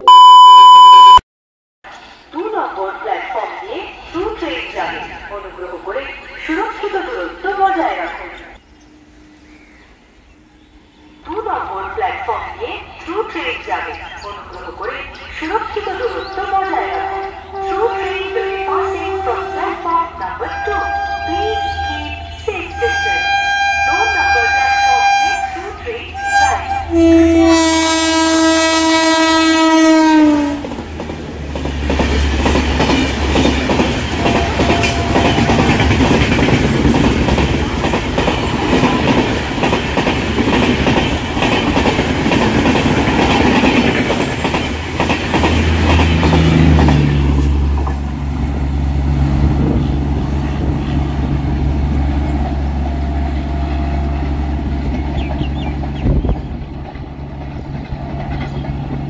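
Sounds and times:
train horn: 0:16.6 - 0:30.7, 0:34.1 - 0:36.0
train wheels clattering: 0:30.6 - 0:48.0.

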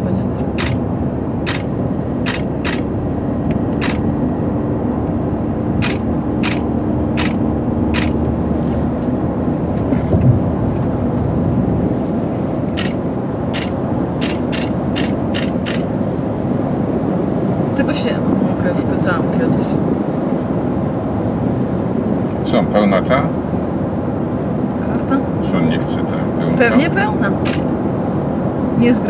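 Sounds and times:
car road and engine rumble: 0:00.0 - 0:29.0
camera shutter clicks: 0:01.5 - 0:02.9, 0:03.8 - 0:04.0, 0:05.8 - 0:07.4, 0:13.6 - 0:15.9, 0:27.4 - 0:27.6.

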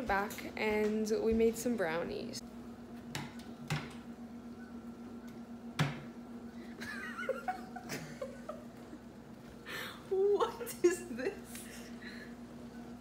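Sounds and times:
steady low hum: 0:00.0 - 0:13.0
soft chuckle: 0:06.7 - 0:09.1.

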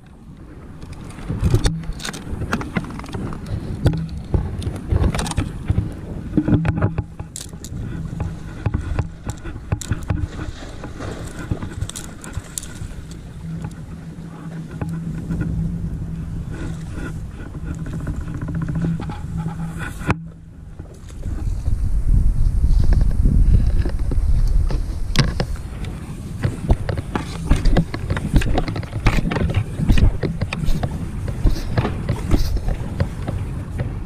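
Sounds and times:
water splashing and slapping: 0:00.0 - 0:34.0
knocks of rod and net: 0:26.4 - 0:33.9.

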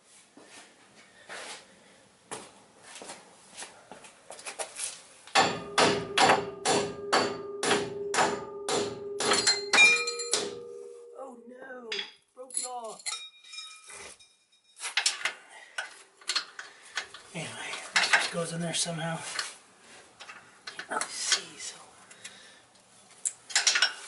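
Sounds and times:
hammer tapping steel: 0:05.4 - 0:11.1.

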